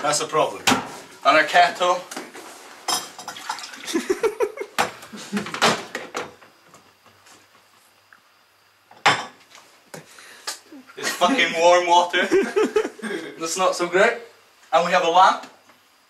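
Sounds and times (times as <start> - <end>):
kettle and cup clinking: 2.9 - 4.1, 9.0 - 9.4
water pouring into a cup: 3.3 - 4.1.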